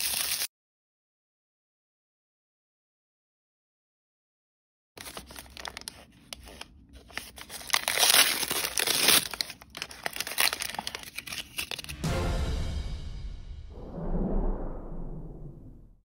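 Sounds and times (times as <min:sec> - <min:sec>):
plastic packaging crinkling and tearing: 0:00.0 - 0:00.5, 0:05.0 - 0:12.0.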